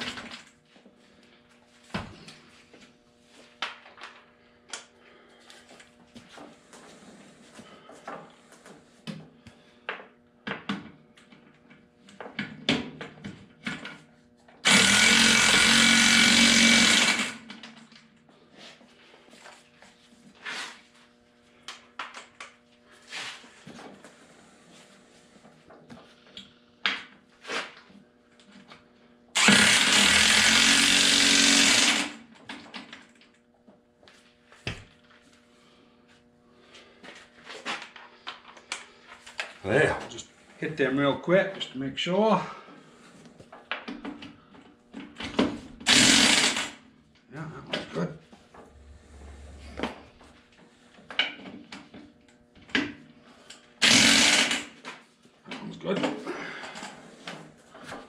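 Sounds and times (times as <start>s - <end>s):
impact wrench bursts: 14.6s - 17.5s, 29.4s - 32.2s, 45.8s - 46.8s, 53.8s - 54.8s.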